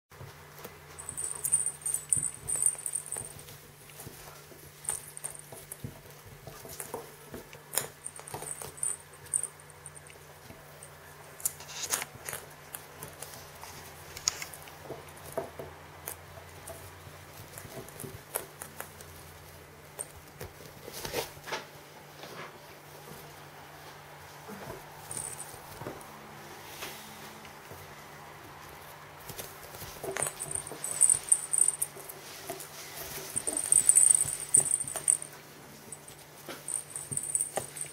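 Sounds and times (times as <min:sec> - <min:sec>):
ferret paws pattering: 0:00.1 - 0:26.5, 0:27.4 - 0:37.9
high jingle: 0:01.0 - 0:03.5, 0:30.2 - 0:32.0, 0:33.3 - 0:37.9.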